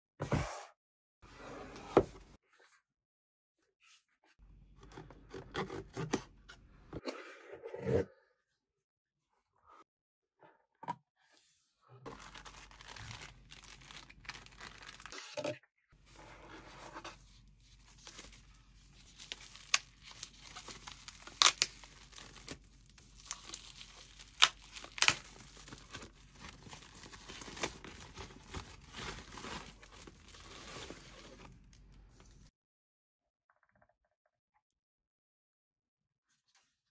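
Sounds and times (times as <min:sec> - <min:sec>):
plastic wrap rustling and crinkling: 0:12.1 - 0:15.2, 0:16.0 - 0:32.5
cardboard box being opened: 0:17.9 - 0:31.5.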